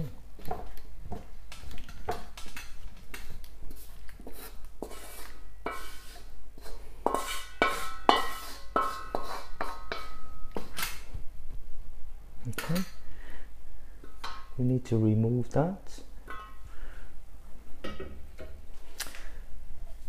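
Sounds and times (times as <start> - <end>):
wooden spatula scraping a wok: 3.1 - 10.7.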